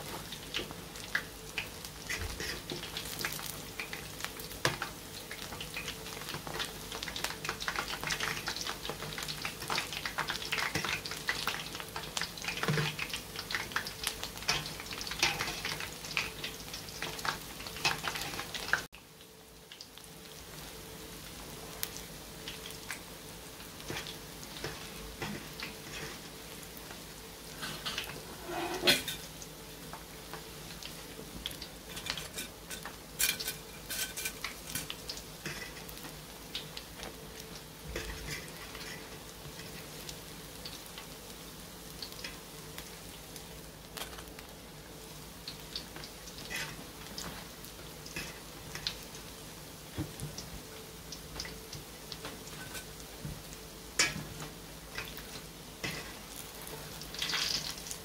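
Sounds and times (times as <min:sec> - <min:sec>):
pastries sizzling in hot oil: 0:00.0 - 0:58.0
metal utensils clinking on pan: 0:27.6 - 0:29.2, 0:31.9 - 0:35.8, 0:52.6 - 0:52.9.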